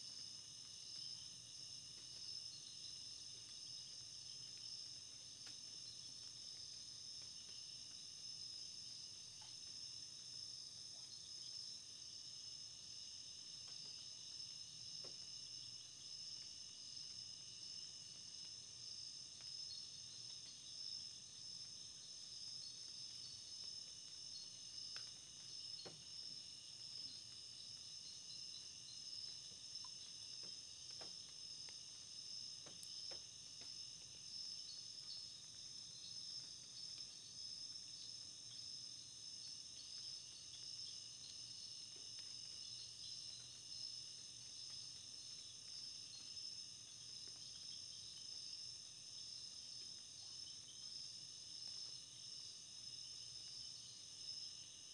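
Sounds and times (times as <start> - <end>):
insects trilling: 0.0 - 54.9
faint ticks: 3.4 - 8.1, 9.3 - 9.9, 13.6 - 14.1, 14.9 - 15.3, 19.3 - 20.8, 21.4 - 38.7, 39.4 - 46.5, 47.1 - 47.8.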